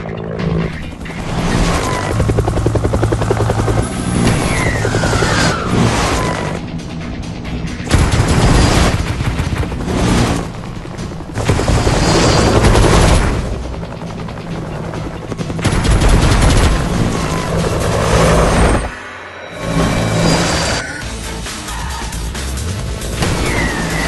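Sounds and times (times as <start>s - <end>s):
background music: 0.0s - 24.0s
helicopter rotor thudding: 0.5s - 19.0s.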